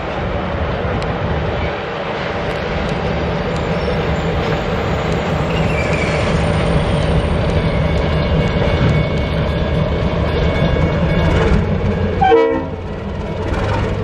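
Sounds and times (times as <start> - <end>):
diesel locomotive engine running: 0.0 - 14.0
faint wheel squeal: 3.6 - 7.4.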